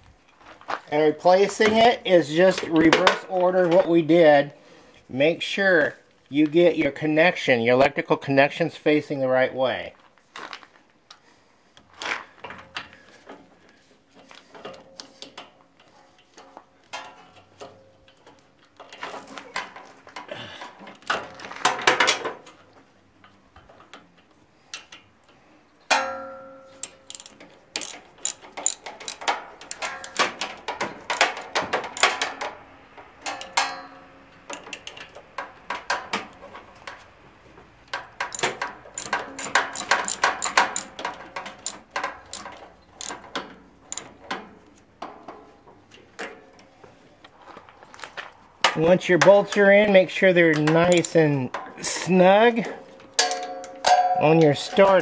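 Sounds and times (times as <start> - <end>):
ringing metal clank: 25.9 - 30.2, 38.3 - 41.0
socket ratchet clicking: 26.8 - 30.4, 31.1 - 31.4, 32.0 - 32.2, 38.2 - 41.0, 41.6 - 43.2, 43.9 - 44.1, 50.8 - 51.2.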